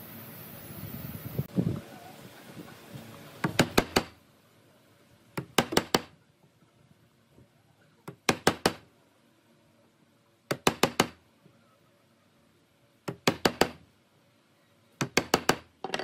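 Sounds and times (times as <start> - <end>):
chisel being struck: 15.0 - 16.0.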